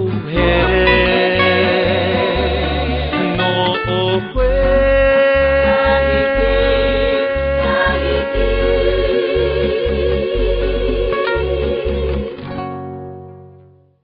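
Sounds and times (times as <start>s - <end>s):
pulsing bass line: 0.0s - 12.6s
guitar song: 0.0s - 14.0s.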